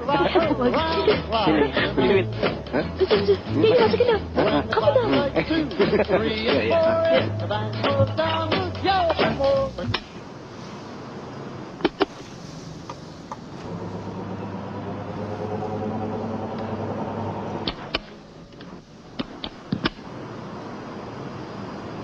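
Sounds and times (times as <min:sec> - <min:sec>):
vehicle road and engine noise: 0:00.0 - 0:22.0
sharp clicks: 0:17.6 - 0:20.0.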